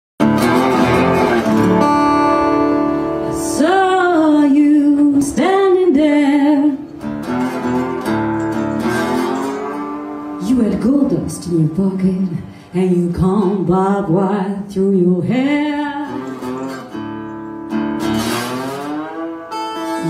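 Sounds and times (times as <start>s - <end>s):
lead melody with pitch bends: 0.2s - 4.9s, 6.7s - 12.4s, 16.1s - 20.0s
strummed acoustic guitar: 0.2s - 20.0s.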